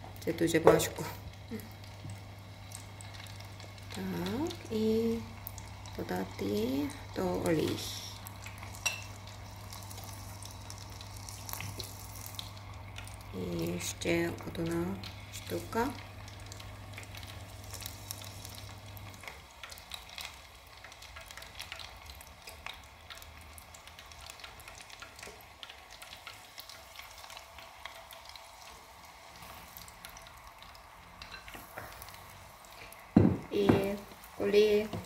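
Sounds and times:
chicken deep-frying in oil: 0.0s - 35.0s.

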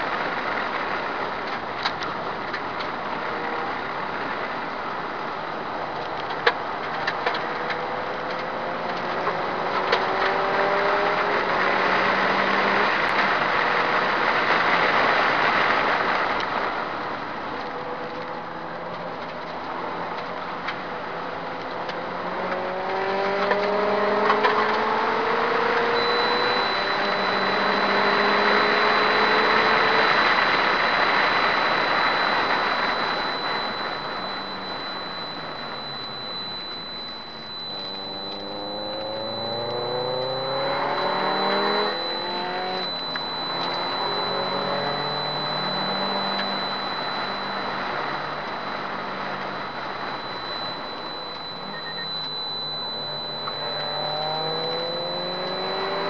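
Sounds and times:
high-pitched whine: 0.0s - 56.0s
wind and road noise: 0.0s - 56.0s
car engine revving hard: 7.5s - 16.1s, 22.0s - 33.6s, 37.8s - 46.6s, 53.5s - 56.0s.

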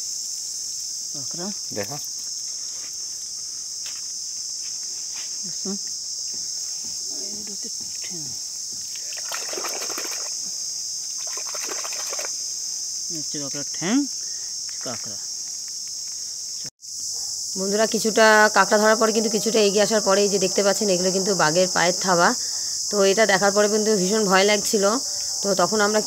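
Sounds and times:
insect chorus: 0.0s - 26.0s
hands sloshing in wet mud: 9.0s - 10.3s, 11.2s - 12.3s.

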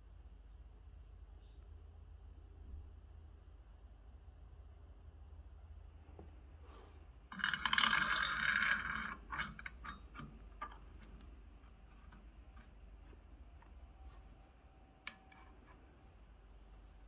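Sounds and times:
metal parts clattering and scraping: 7.3s - 13.0s.

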